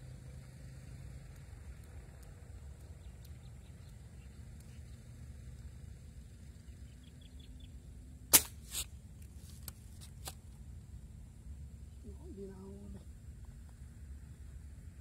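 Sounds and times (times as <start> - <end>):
low wind rumble: 0.0 - 9.3, 10.5 - 15.0
air rifle crack: 8.3 - 8.9.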